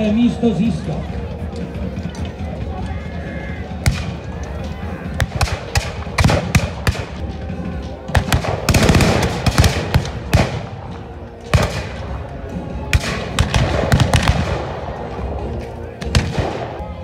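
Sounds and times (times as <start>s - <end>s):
muskets firing: 3.8s - 15.2s, 15.9s - 17.0s.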